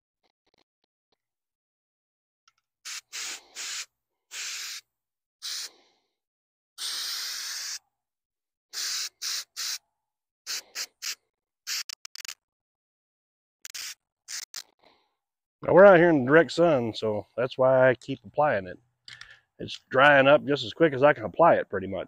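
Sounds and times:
spray can hissing bursts: 2.8s - 4.8s, 5.4s - 5.7s, 6.8s - 7.8s, 8.7s - 9.8s, 10.5s - 12.3s, 13.6s - 14.6s.

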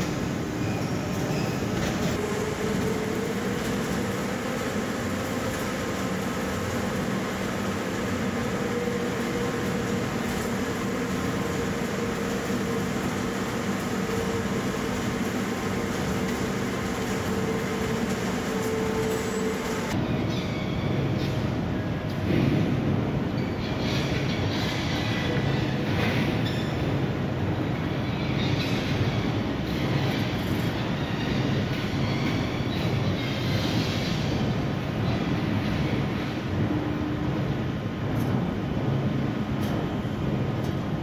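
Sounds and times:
machine whine: 0.0s - 20.0s
industrial machinery rumble: 0.0s - 41.0s.

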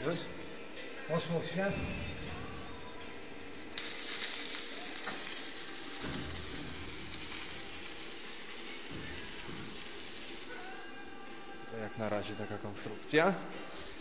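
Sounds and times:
arc welding sizzling and crackling: 3.5s - 10.7s, 13.7s - 14.0s.

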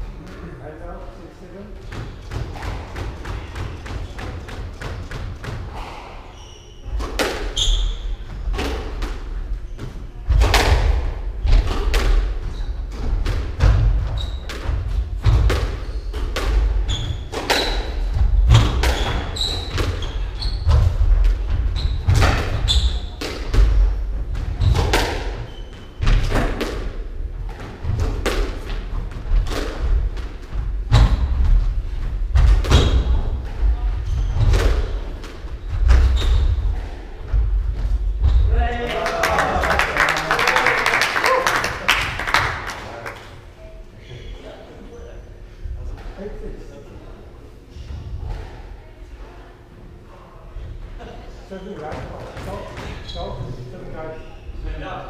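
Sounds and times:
squash ball hitting rackets and walls: 1.8s - 5.8s, 6.8s - 38.6s
shoe squeaks: 6.3s - 8.5s, 12.5s - 13.0s, 14.1s - 14.6s, 16.8s - 18.1s, 18.8s - 21.0s, 21.7s - 23.2s, 24.6s - 26.1s, 34.0s - 34.9s, 35.6s - 37.0s, 52.8s - 54.6s.

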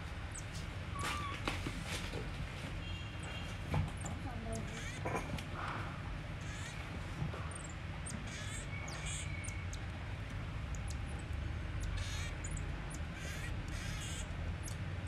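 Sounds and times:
marmoset high-pitched chirps: 0.3s - 1.4s, 3.2s - 5.0s, 6.4s - 6.8s, 7.4s - 14.9s
steady low hum: 1.7s - 15.0s.

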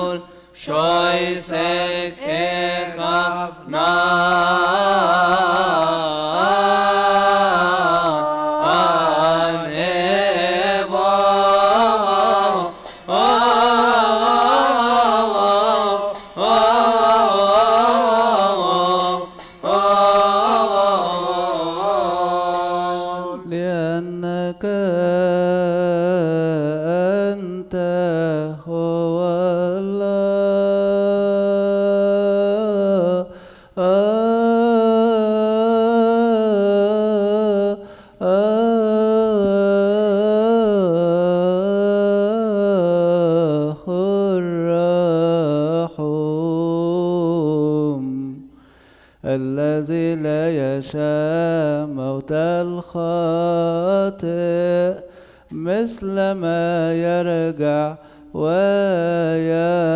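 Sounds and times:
man chanting into a microphone: 0.0s - 59.9s
breaths between phrases: 0.2s - 0.6s, 33.3s - 33.8s, 37.8s - 38.2s, 48.5s - 49.3s, 55.0s - 55.6s, 58.0s - 58.4s.

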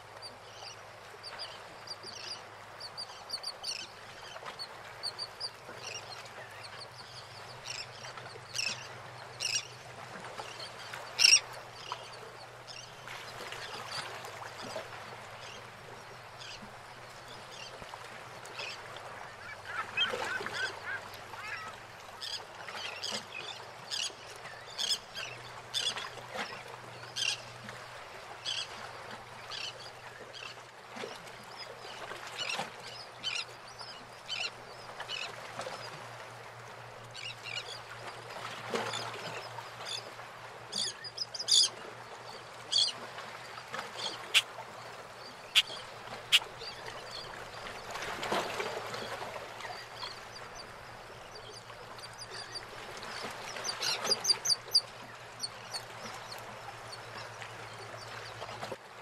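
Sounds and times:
water lapping around boats: 0.0s - 59.0s
birds squawking: 45.5s - 46.6s.

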